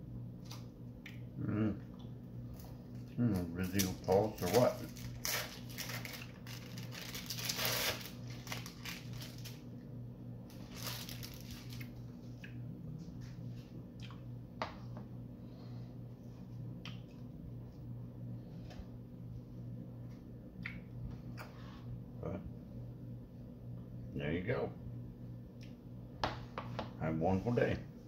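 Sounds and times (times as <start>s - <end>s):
steady low hum: 0.0s - 28.0s
plastic wrapper crinkling: 3.3s - 9.6s, 10.5s - 12.0s.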